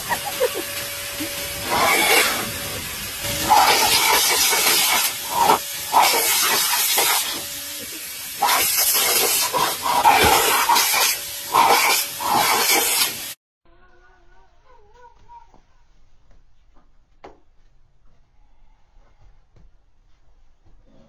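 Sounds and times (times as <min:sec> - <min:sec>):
vacuum nozzle hissing air: 0:00.0 - 0:13.4.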